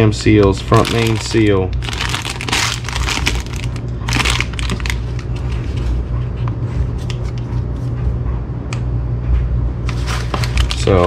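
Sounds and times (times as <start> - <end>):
steady low hum: 0.0 - 11.0
plastic bags crinkling: 0.3 - 5.6, 9.9 - 11.0.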